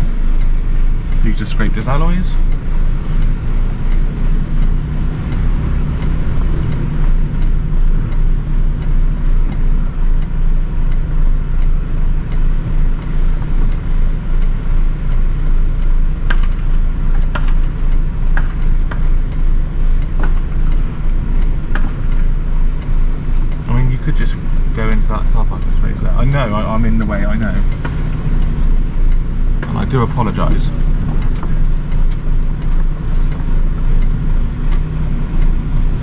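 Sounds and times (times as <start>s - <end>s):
diesel truck engine droning: 0.0s - 36.0s.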